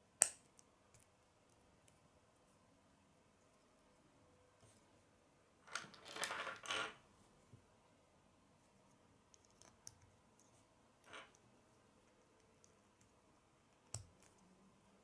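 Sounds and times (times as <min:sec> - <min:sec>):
plastic pieces clattering: 0:05.7 - 0:07.0.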